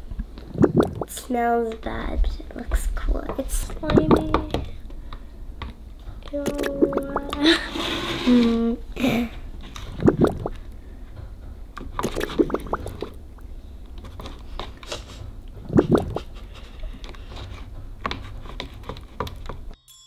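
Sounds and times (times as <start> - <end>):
stick stirring slime in plastic cup: 5.6 - 7.6, 11.8 - 13.2, 13.9 - 19.7.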